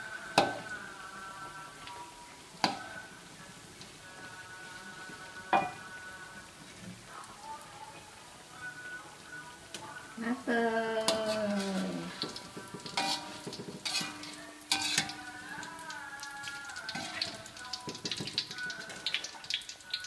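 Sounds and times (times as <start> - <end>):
food sizzling in hot oil: 0.0 - 20.0
utensils scraping and knocking pan: 11.1 - 15.2.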